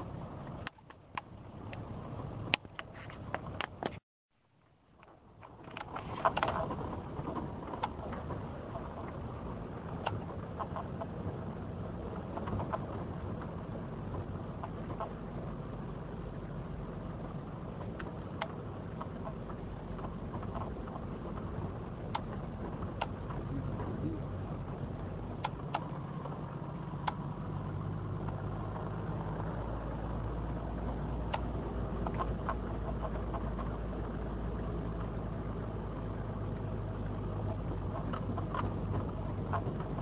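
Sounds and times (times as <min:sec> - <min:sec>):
vehicle engine drone: 0:00.0 - 0:40.0
clicks and rattles: 0:05.0 - 0:09.2.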